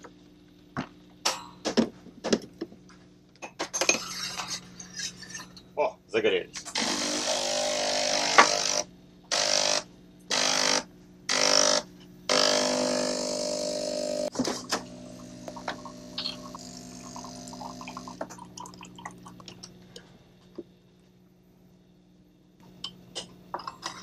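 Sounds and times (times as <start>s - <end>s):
faint steady hum: 0.0s - 24.0s
espresso machine motor running: 6.7s - 19.0s.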